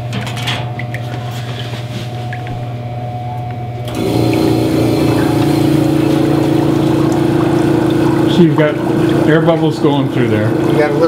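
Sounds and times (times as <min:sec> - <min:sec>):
air compressor motor hum: 0:01.4 - 0:11.0
air bubbling through water: 0:04.0 - 0:09.4.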